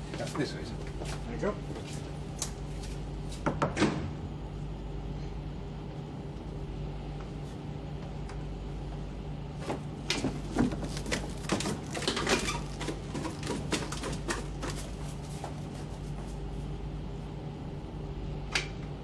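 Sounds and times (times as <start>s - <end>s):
steady low hum: 0.0s - 19.0s
hurried footsteps on ship's deck: 9.7s - 16.8s.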